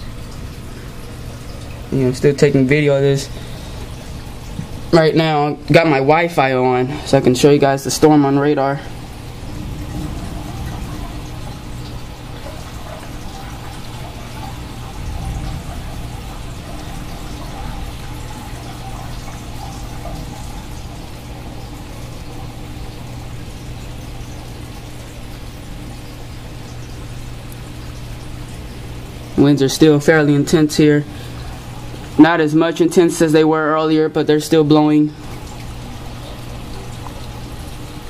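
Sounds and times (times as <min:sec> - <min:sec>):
water running off roof: 0:00.0 - 0:38.0
heavy rain pouring: 0:08.9 - 0:24.7.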